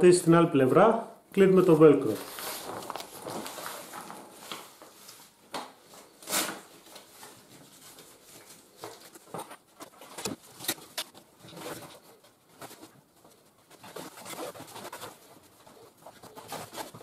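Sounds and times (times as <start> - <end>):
fabric rustling: 2.0 - 17.0
cloth swish: 2.2 - 3.9.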